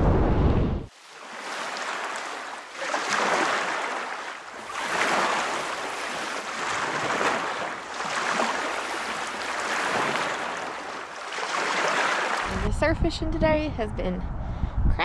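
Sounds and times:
small waves washing in: 0:00.9 - 0:12.6.

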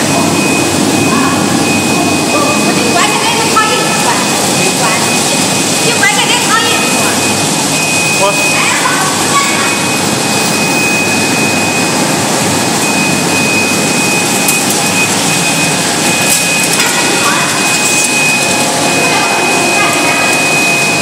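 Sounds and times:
thin high whine: 0:00.0 - 0:21.0
washing machine mechanical noise: 0:00.0 - 0:21.0.

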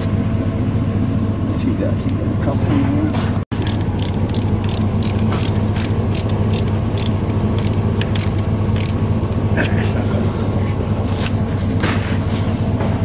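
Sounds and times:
low hum: 0:00.0 - 0:13.0
hand ratchet clicking: 0:03.6 - 0:09.4.

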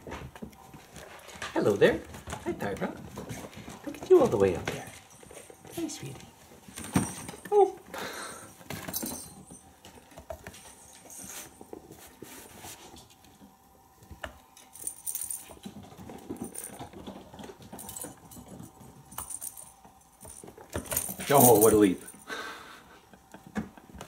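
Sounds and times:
light jingle: 0:08.8 - 0:09.7, 0:17.8 - 0:22.3.

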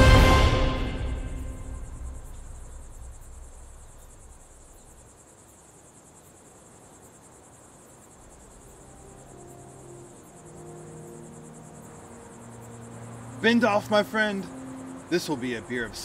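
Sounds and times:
loud music: 0:00.0 - 0:02.1
crickets chirping: 0:00.0 - 0:16.0.

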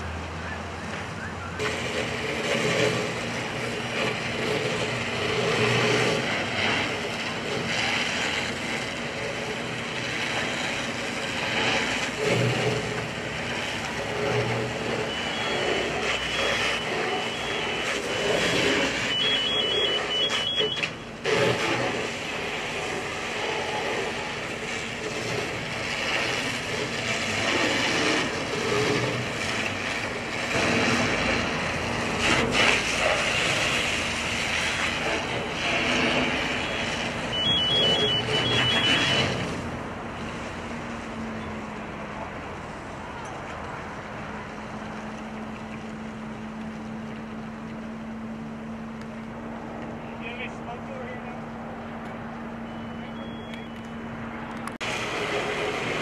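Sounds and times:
engine hum: 0:00.0 - 0:56.0
fire hose spraying: 0:00.0 - 0:56.0
electronic beeps: 0:15.0 - 0:21.0, 0:36.6 - 0:39.4, 0:52.6 - 0:54.4.

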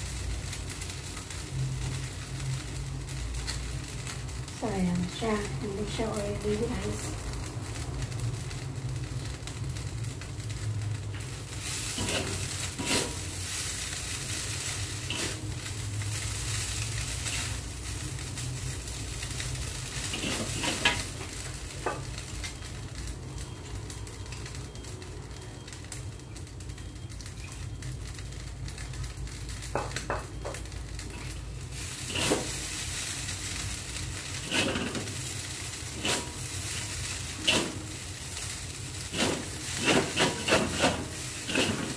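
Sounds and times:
noodles sizzling in a wok: 0:00.0 - 0:41.9
spatula scraping a wok: 0:11.2 - 0:18.2, 0:18.8 - 0:22.1, 0:31.1 - 0:41.9.

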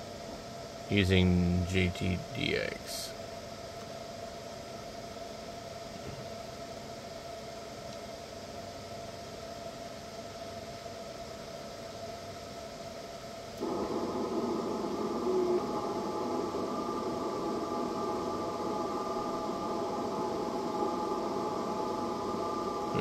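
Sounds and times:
radio band hiss: 0:00.8 - 0:03.2, 0:13.6 - 0:23.0
overlapping steady digital tones: 0:13.6 - 0:23.0.

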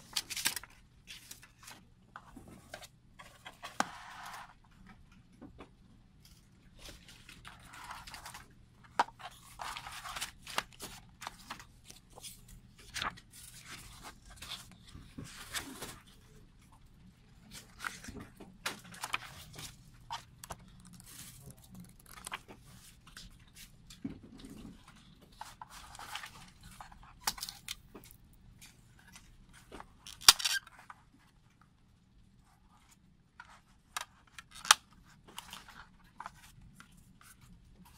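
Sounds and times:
paper and card rustling: 0:00.0 - 0:04.6, 0:06.3 - 0:16.4, 0:17.4 - 0:31.0, 0:32.7 - 0:37.9
photobook pages flipping: 0:00.0 - 0:04.6, 0:06.2 - 0:16.4, 0:17.5 - 0:31.0, 0:33.4 - 0:37.9
plastic disc cases handled: 0:06.8 - 0:16.1, 0:17.5 - 0:31.0.

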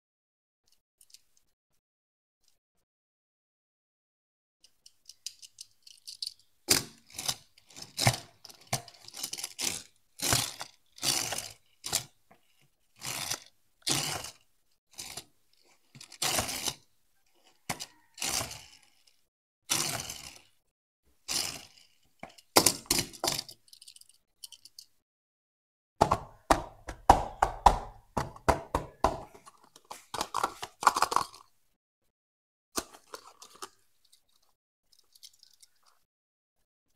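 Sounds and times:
toy car wheels rolling on cardboard: 0:04.8 - 0:20.6, 0:21.2 - 0:24.9, 0:27.9 - 0:31.6, 0:32.8 - 0:36.0.

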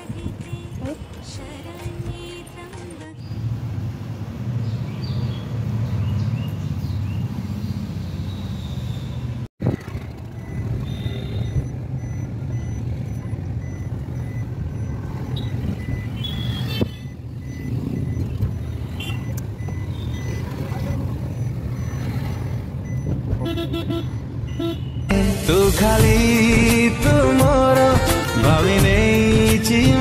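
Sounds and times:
car engine and road rumble: 0:00.0 - 0:30.0
faint high beeps: 0:10.3 - 0:23.2.

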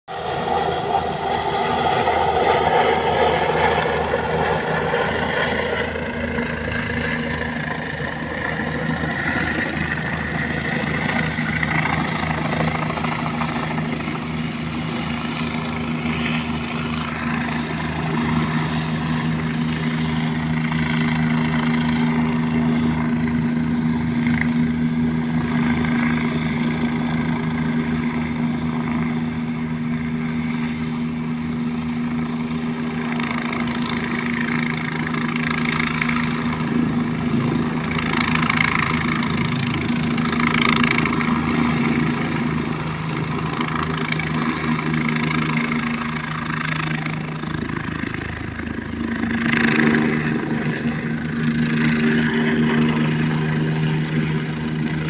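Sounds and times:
helicopter rotor chop: 0:00.1 - 0:55.0
high engine whine: 0:00.1 - 0:55.0.

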